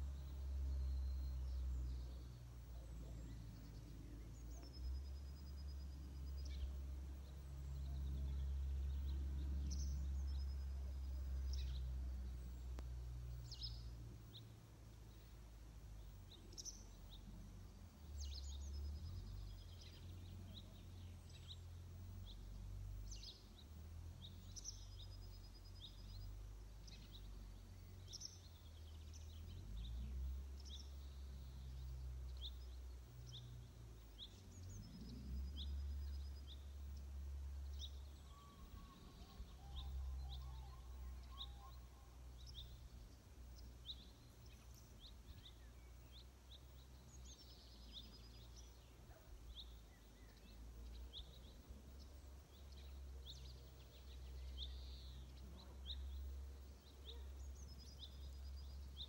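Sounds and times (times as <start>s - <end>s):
small birds chirping and trilling: 0.0s - 59.0s.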